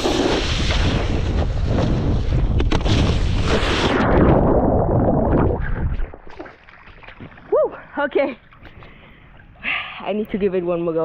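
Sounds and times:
wind rushing over microphone: 0.0 - 6.2.

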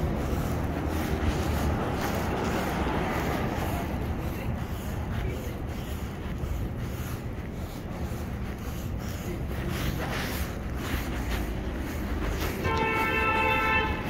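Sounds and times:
cars driving past: 0.0 - 7.2.

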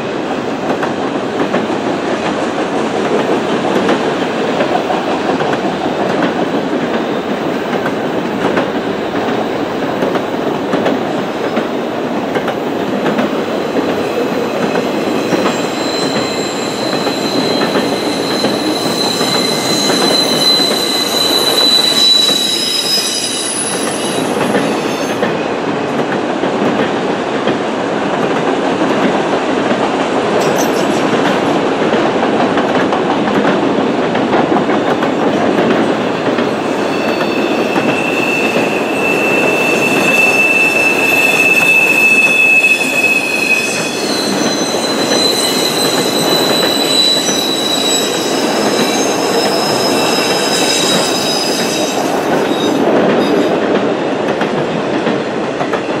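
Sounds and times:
train wheels rumbling on rails: 0.0 - 56.0
high-pitched wheel squeal: 14.6 - 25.2, 36.4 - 53.5.

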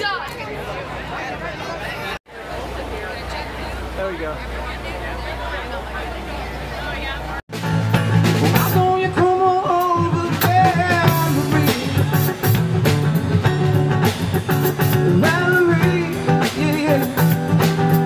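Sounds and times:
drum kit beat: 7.5 - 18.0
electric guitar: 7.5 - 18.0
person singing: 8.5 - 12.5, 15.0 - 18.0.

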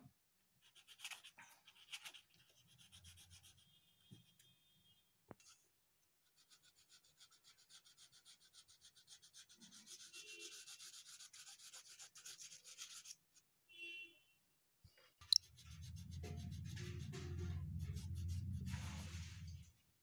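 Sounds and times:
crayon scribbling on paper: 0.6 - 3.6, 6.2 - 13.2.

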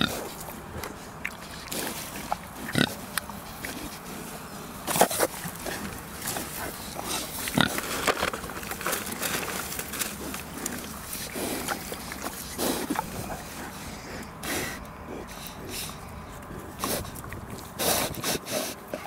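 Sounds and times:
pigs chewing and rooting: 0.0 - 19.0
pigs grunting: 0.0 - 19.0.

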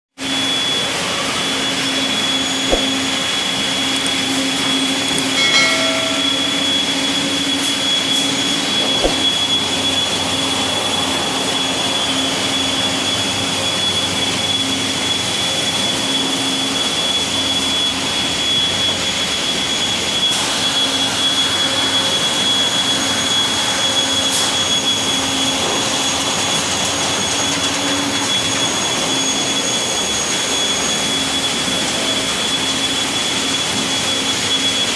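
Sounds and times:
high machine whine: 0.2 - 34.9
factory machinery din: 1.1 - 11.2.

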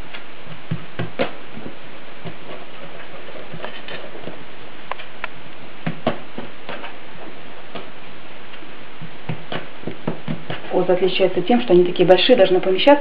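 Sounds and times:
steady hiss: 0.0 - 13.0
hands patting dough on wooden board: 0.1 - 4.4, 5.8 - 7.0, 9.0 - 10.7.

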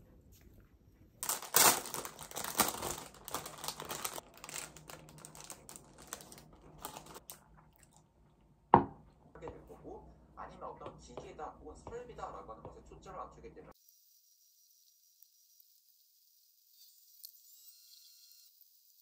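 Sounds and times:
plastic bag crinkling: 1.2 - 7.4.

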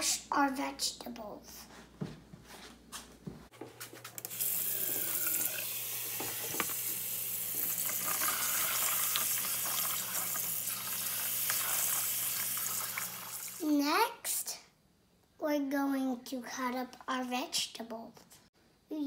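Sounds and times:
faucet running into sink: 4.2 - 13.6.

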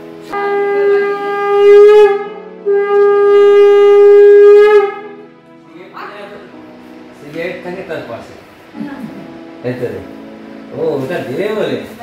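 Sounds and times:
conch shell blasts: 0.3 - 5.2.

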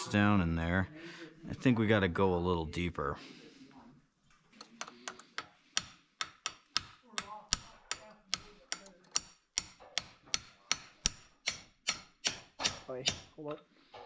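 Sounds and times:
hammer tapping steel punch: 4.8 - 13.3.

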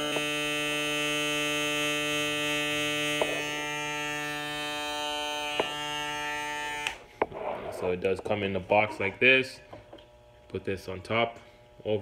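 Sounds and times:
shaver switching off: 0.0 - 7.3
electric shaver buzzing: 0.0 - 12.0.

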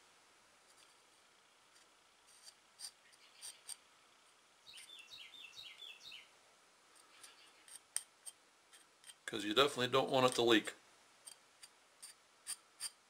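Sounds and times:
small tool clicks and scrapes: 1.7 - 3.8, 7.0 - 9.3, 11.2 - 13.0.

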